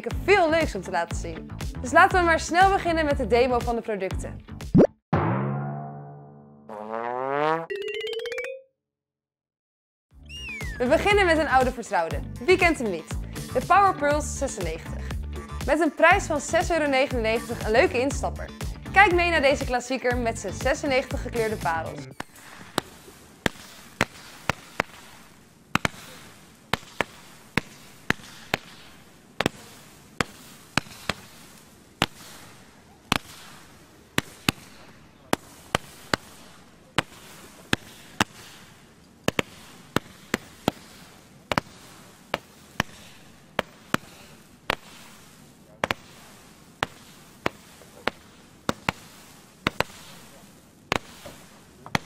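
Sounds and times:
firework pops: 22.2 - 52.0
low firework hiss: 22.2 - 52.0.

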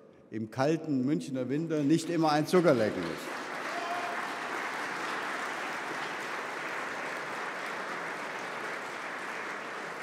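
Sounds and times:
audience applauding: 1.8 - 10.0.

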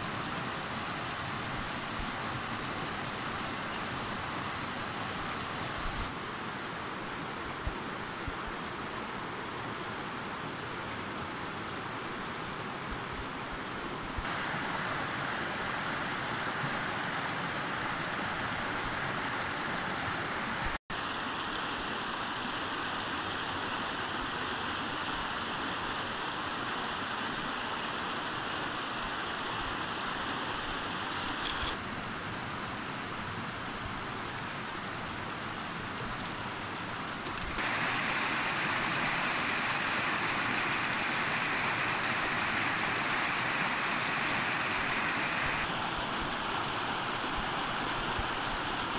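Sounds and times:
water rushing over stones: 14.2 - 48.9.

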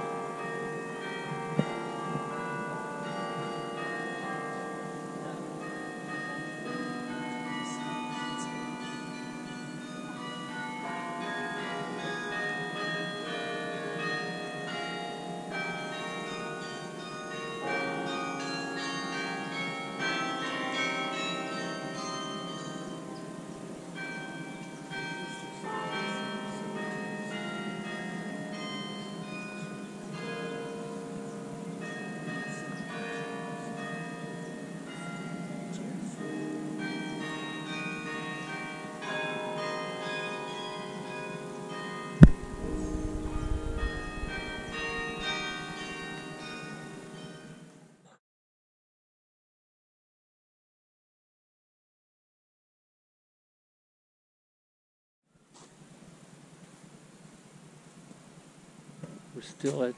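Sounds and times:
carillon bells playing a tune: 0.0 - 35.7, 36.4 - 47.6.

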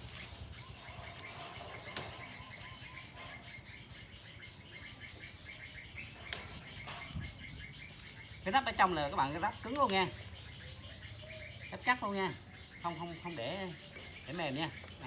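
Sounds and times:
pliers clicking on wire mesh: 0.0 - 2.8, 5.2 - 7.3, 9.7 - 10.4
small birds chirping: 0.0 - 15.0.

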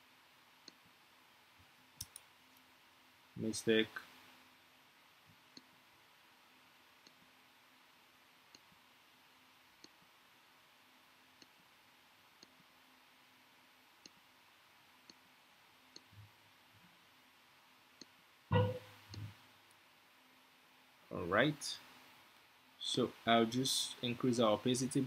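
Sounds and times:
faint steady hum: 0.0 - 25.0
computer mouse clicks: 2.0 - 2.3, 9.8 - 10.0.

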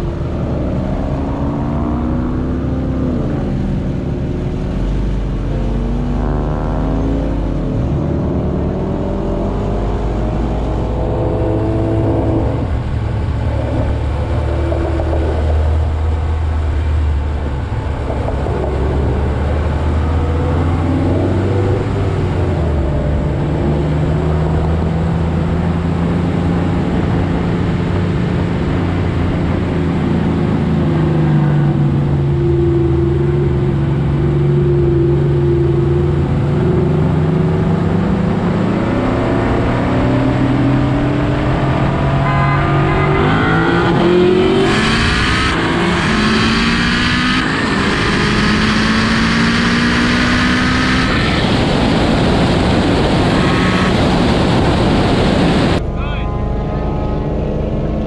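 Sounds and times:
car engine running: 0.0 - 26.9
road and wind rush: 0.0 - 58.0.

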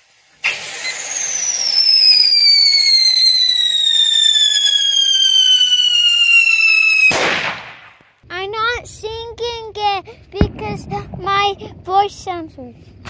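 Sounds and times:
firework whistle scream: 0.0 - 8.0.

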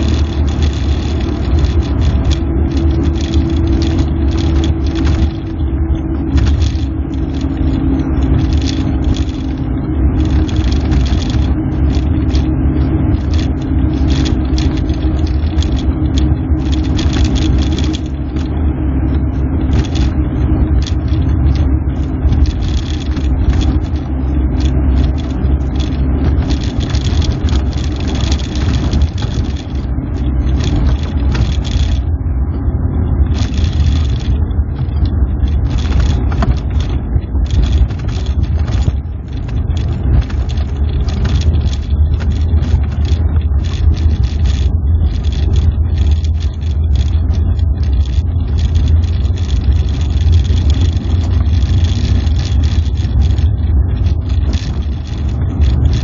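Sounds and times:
car engine rumble inside cabin: 0.0 - 56.0.

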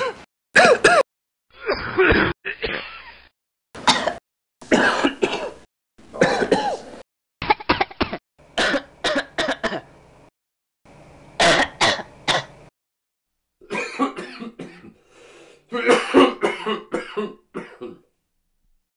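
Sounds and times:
person clearing throat: 0.0 - 1.0, 1.6 - 2.9, 3.8 - 5.5, 6.2 - 6.9, 11.4 - 12.5, 13.7 - 15.0, 15.7 - 18.1
person coughing: 0.0 - 2.9, 3.8 - 5.6, 6.2 - 6.9, 7.8 - 9.8, 11.4 - 12.5, 13.6 - 15.0, 15.7 - 18.1.

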